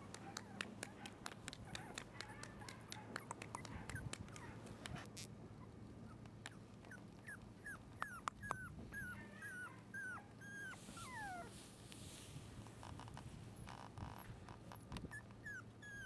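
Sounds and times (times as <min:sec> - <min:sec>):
puppy whimpering: 0:01.6 - 0:05.1, 0:06.1 - 0:11.6, 0:14.1 - 0:16.0.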